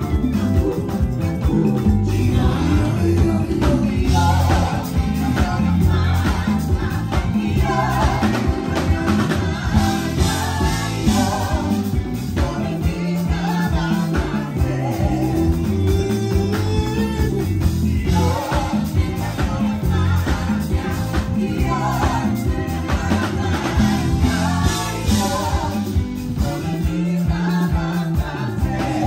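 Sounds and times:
congas: 0.0 - 29.0
electric bass lines: 0.0 - 29.0
gospel band playing: 0.0 - 29.0
person singing: 9.8 - 20.4.

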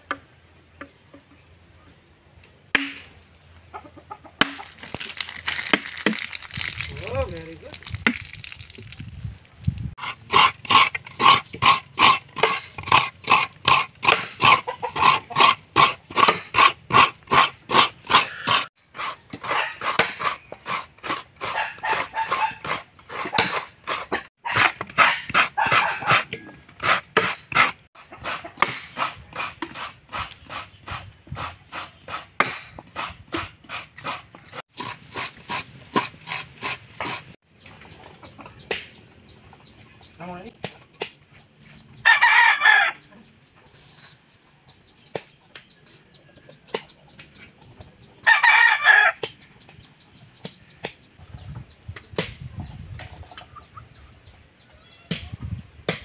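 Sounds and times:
knife scraping coconut: 10.0 - 37.4
rooster crowing: 42.0 - 43.1, 48.2 - 49.2.

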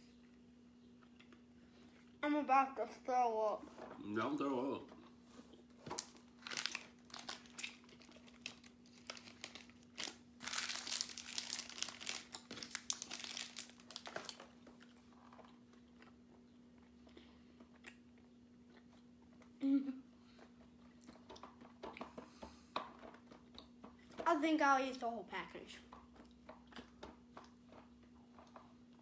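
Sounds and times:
faint steady hum: 0.0 - 29.0
snack pouch crinkling: 6.0 - 15.0.

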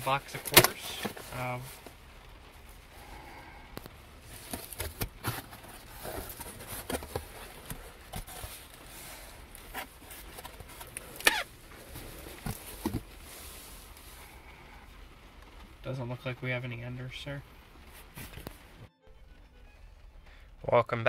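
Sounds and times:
cardboard box being opened: 4.4 - 13.1.

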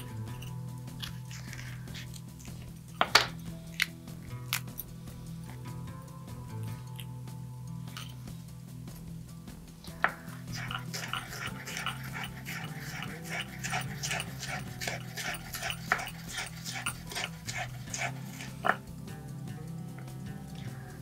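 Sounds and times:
soft background music: 0.0 - 21.0
knife slicing pepper on board: 10.6 - 18.8.

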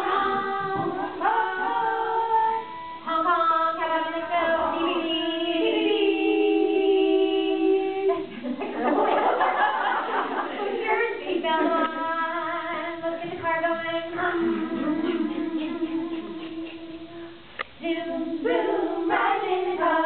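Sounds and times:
women singing unaccompanied: 0.0 - 8.4, 9.4 - 20.0
women laughing: 8.2 - 11.9.

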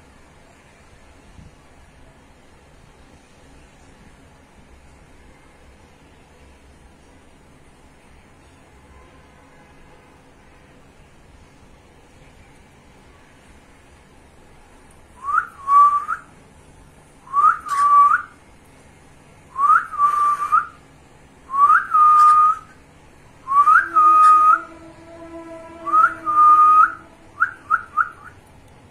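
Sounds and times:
cockatiel whistling: 17.3 - 18.3, 19.6 - 20.8, 21.5 - 22.8, 23.5 - 24.7, 25.9 - 28.4
cockatiel chirps: 17.4 - 18.2, 21.9 - 22.7.

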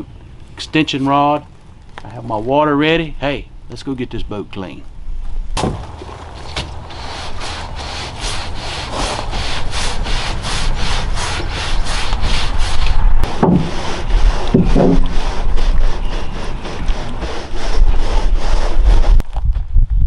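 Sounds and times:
brush scrubbing metal boat: 6.1 - 19.2.

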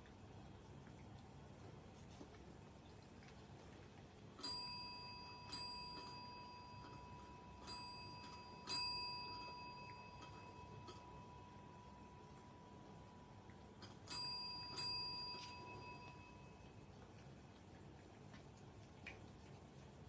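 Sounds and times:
service bell dinging: 4.4 - 13.0, 14.0 - 16.6.

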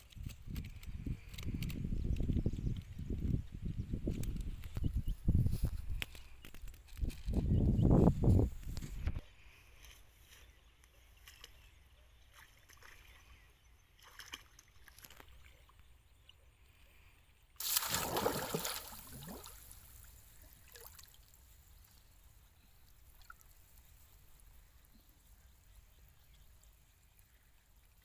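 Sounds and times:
water splashing and sloshing: 12.3 - 16.4, 17.6 - 22.1
loud splash: 17.6 - 19.7
water trickling: 17.6 - 28.0.

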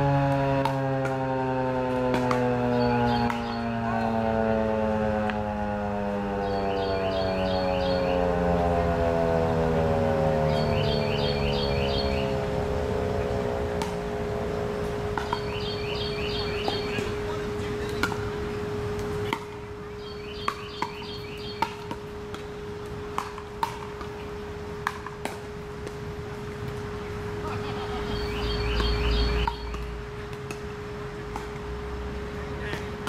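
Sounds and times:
siren winding down: 0.0 - 17.0
bird chirping: 2.7 - 4.2, 6.4 - 8.3, 10.4 - 13.5, 15.2 - 17.4, 19.8 - 21.9, 27.0 - 30.0.

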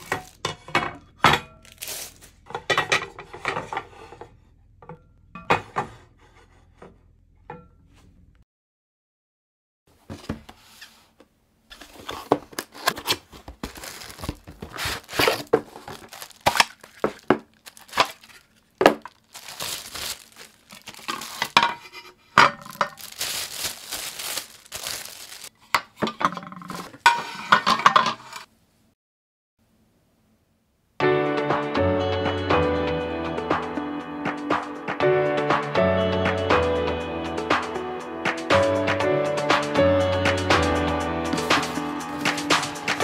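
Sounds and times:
plastic wrapping crinkling and tearing: 0.0 - 0.4, 1.6 - 2.4, 11.7 - 21.6, 22.4 - 25.6
metal plates knocking and clinking: 2.5 - 3.9, 21.4 - 23.0, 25.8 - 28.2.

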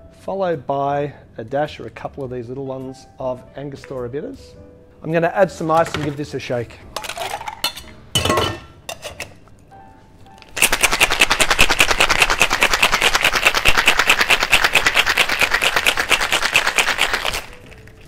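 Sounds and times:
shaker closing clatter: 10.4 - 18.0
ice rattling in cocktail shaker: 10.5 - 18.0.

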